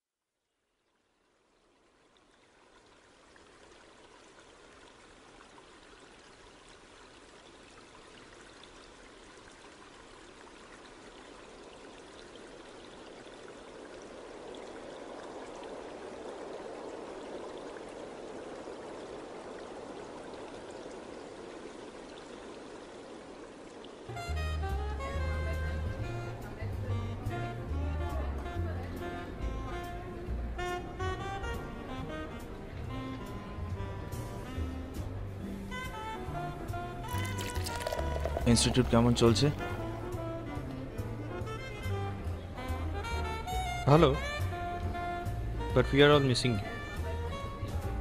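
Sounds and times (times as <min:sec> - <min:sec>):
running water rushing: 0:00.9 - 0:25.1, 0:36.7 - 0:40.6.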